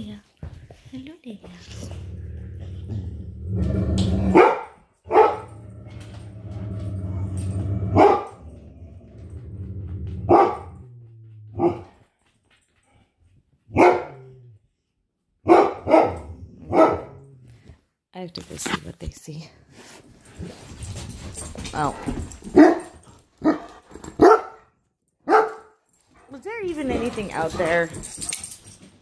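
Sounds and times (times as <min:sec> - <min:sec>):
dogs barking: 0:04.3 - 0:05.6, 0:07.9 - 0:08.4, 0:10.3 - 0:10.8, 0:11.6 - 0:12.0, 0:13.7 - 0:14.4, 0:15.4 - 0:17.2, 0:22.4 - 0:25.8.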